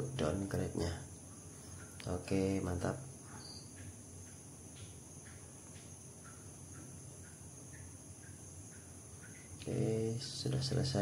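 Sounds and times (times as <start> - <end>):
faint chirps: 0.0 - 11.0.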